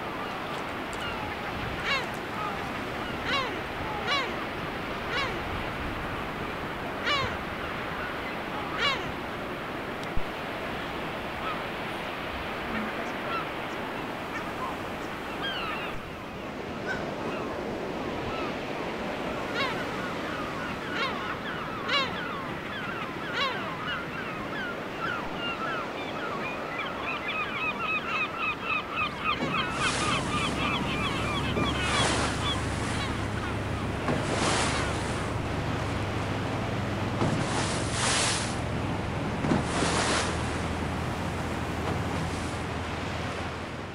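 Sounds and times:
boat engine hum: 0:00.0 - 0:18.1, 0:27.2 - 0:43.9
sea wash: 0:00.0 - 0:43.9
seabirds calling: 0:00.0 - 0:43.9.

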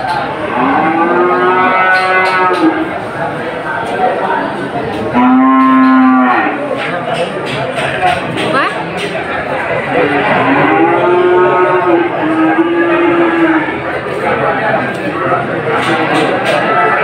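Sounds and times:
steady background noise: 0:00.0 - 0:17.0
cattle mooing: 0:00.4 - 0:02.9, 0:05.1 - 0:06.6, 0:10.0 - 0:13.9.

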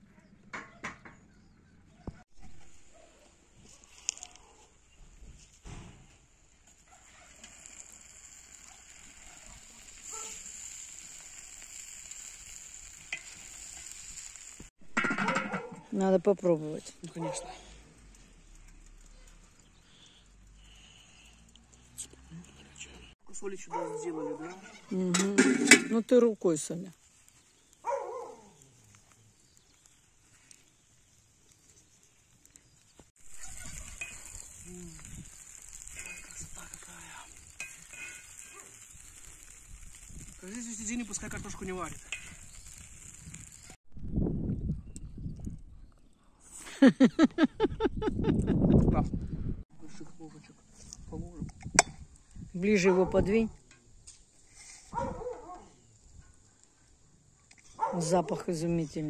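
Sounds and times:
food sizzling in a pot: 0:05.7 - 0:17.1, 0:24.6 - 0:43.8
metal spoon stirring: 0:33.5 - 0:34.6, 0:37.4 - 0:38.6.

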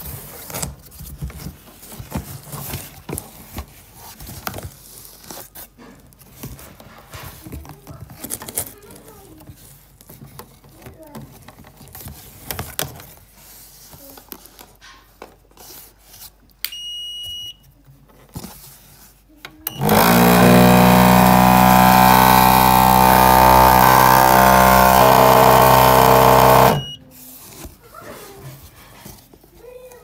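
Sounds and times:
mixing motor running: 0:19.7 - 0:27.0
short electronic beep: 0:26.8 - 0:27.0.

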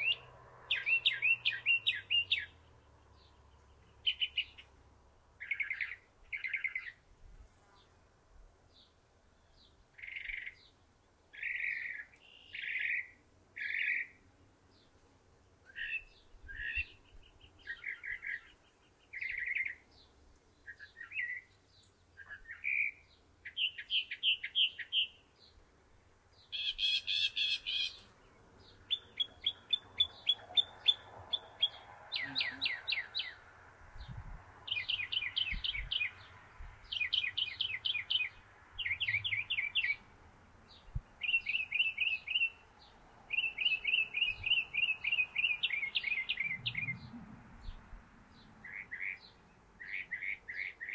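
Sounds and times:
mockingbird singing: 0:00.0 - 0:04.7, 0:26.4 - 0:33.4, 0:34.0 - 0:40.0, 0:40.7 - 0:42.6, 0:43.3 - 0:47.8, 0:48.6 - 0:50.9.

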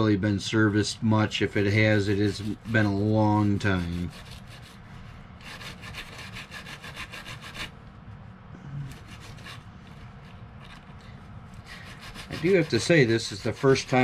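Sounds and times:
wire brush scrubbing metal: 0:00.6 - 0:07.8, 0:08.9 - 0:10.9, 0:11.5 - 0:14.0.

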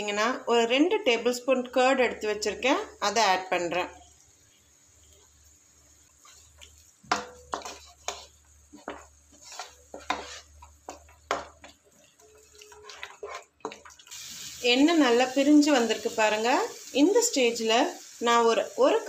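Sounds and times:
wooden spatula scraping frying pan: 0:06.1 - 0:14.1.

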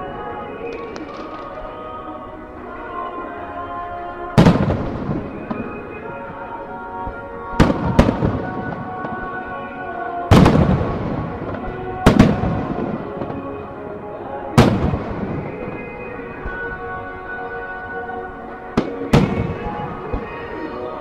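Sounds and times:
music over loudspeakers: 0:00.0 - 0:21.0
firework shells booming: 0:10.3 - 0:13.6, 0:14.6 - 0:16.6, 0:18.8 - 0:20.6.

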